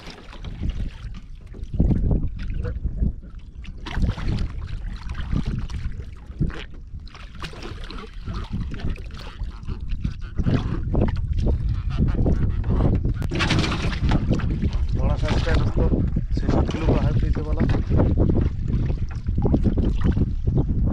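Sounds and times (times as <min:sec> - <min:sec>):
fish thrashing in water: 0:00.0 - 0:02.7, 0:03.5 - 0:11.7, 0:13.2 - 0:15.9, 0:16.5 - 0:20.5
water splashing against boat: 0:00.0 - 0:20.9
wind on microphone: 0:00.0 - 0:20.9.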